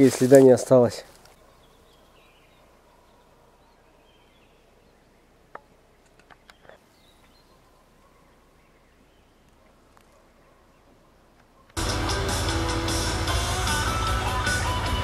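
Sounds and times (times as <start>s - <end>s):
faint bird chirps: 1.2s - 11.8s.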